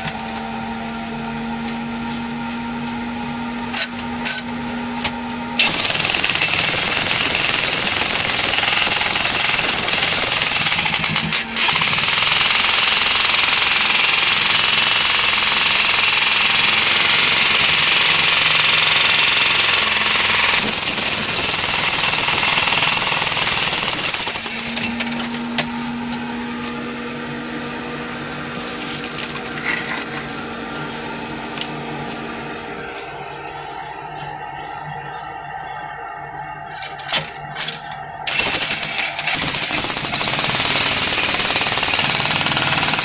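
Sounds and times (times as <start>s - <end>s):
jackhammer hammering into rock: 5.0s - 25.7s, 38.3s - 43.0s.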